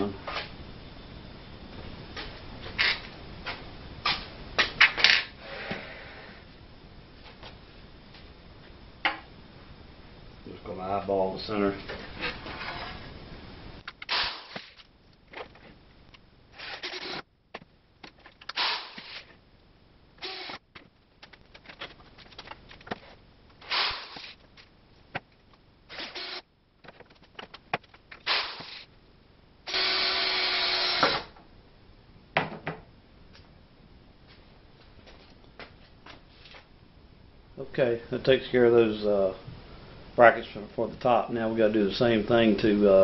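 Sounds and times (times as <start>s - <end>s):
power drill driving screws: 14.1s - 14.8s, 16.6s - 17.2s, 18.6s - 19.3s, 20.2s - 20.6s, 23.6s - 24.3s, 25.9s - 26.4s, 28.2s - 28.8s, 29.7s - 31.3s.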